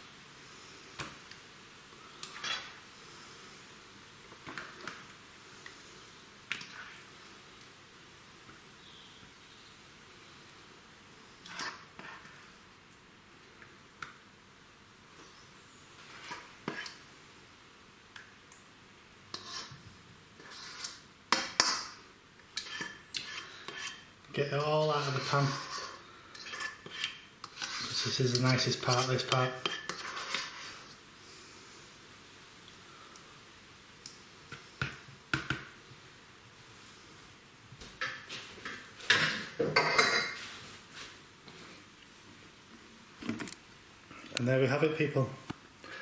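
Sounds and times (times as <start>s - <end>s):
utensil scraping a metal pan: 11.4s - 12.4s, 19.3s - 19.8s, 20.4s - 21.8s, 22.6s - 31.0s.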